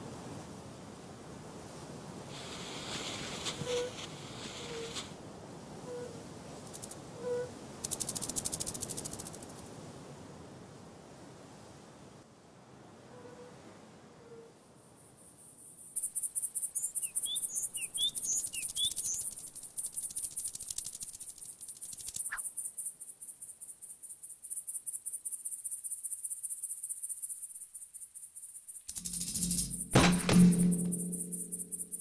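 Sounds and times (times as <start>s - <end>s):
insect trilling: 5.8s - 9.5s, 16.0s - 30.0s.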